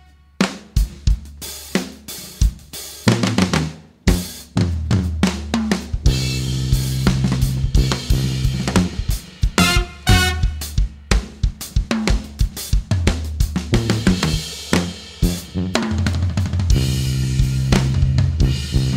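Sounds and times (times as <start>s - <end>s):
drum kit playing: 0.0s - 18.9s
low brass held note: 9.6s - 10.7s.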